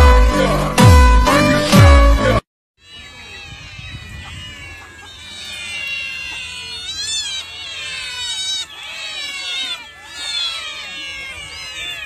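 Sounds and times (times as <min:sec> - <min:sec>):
many cats meowing: 0:02.8 - 0:12.0.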